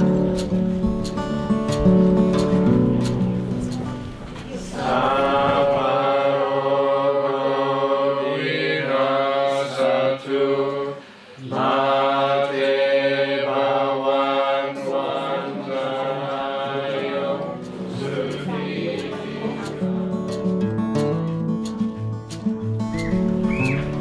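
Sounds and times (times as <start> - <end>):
monks and congregation chanting: 4.5 - 20.0.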